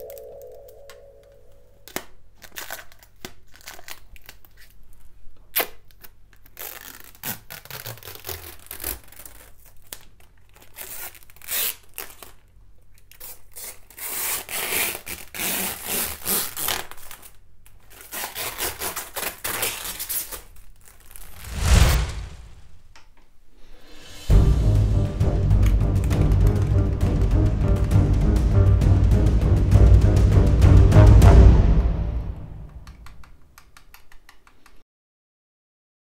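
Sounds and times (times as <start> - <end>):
plastic film peeling and crinkling: 1.9 - 21.4
low boom sound effect: 24.3 - 32.8.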